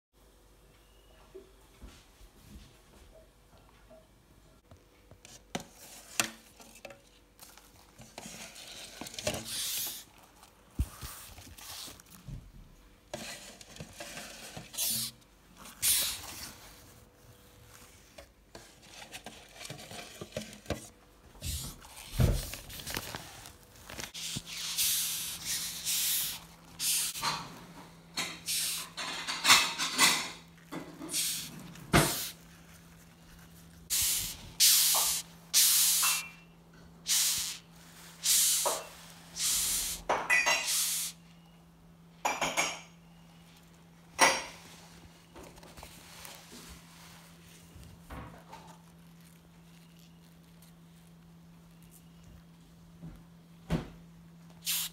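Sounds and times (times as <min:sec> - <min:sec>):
beetles hissing: 0:09.4 - 0:10.0, 0:14.8 - 0:15.2, 0:15.8 - 0:16.3, 0:24.2 - 0:27.2, 0:28.4 - 0:29.0, 0:31.1 - 0:32.4, 0:33.9 - 0:36.3, 0:37.1 - 0:37.6, 0:38.2 - 0:38.8, 0:39.4 - 0:41.2, 0:54.6 - 0:54.9.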